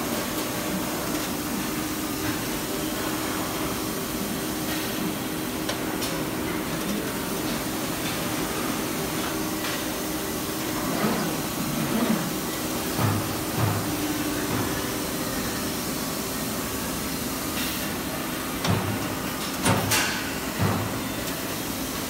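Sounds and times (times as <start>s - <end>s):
machine hum and hiss: 0.0s - 22.0s.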